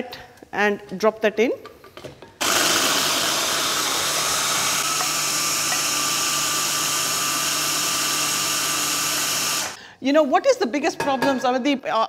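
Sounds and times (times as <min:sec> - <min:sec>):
electric hand blender running: 0:02.4 - 0:09.8.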